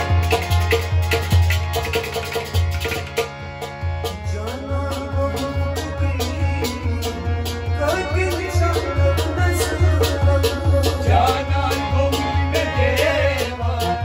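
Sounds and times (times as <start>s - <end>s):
harmonium chords: 0.0s - 14.0s
percussion steady beat: 0.0s - 14.0s
man singing: 4.2s - 14.0s.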